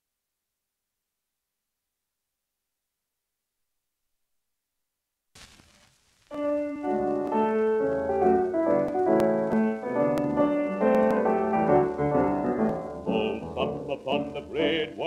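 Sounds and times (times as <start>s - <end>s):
record surface clicks: 5.4s - 13.5s
instrumental music on gramophone: 6.1s - 15.0s
person singing: 10.8s - 15.0s.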